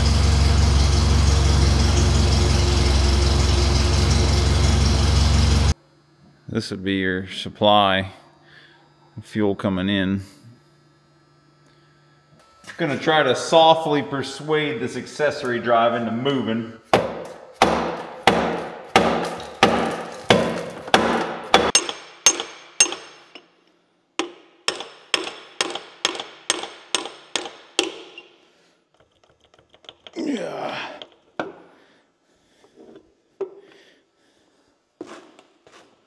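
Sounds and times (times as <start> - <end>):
handling noises: 18.5 - 21.8.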